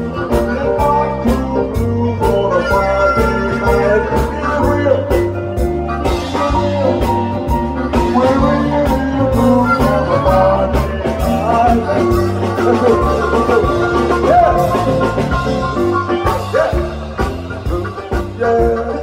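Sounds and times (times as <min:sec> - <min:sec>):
man singing into microphone: 0:00.0 - 0:15.6, 0:16.4 - 0:19.0
drums: 0:00.0 - 0:19.0
electric guitar: 0:00.0 - 0:19.0
keyboard: 0:00.0 - 0:19.0.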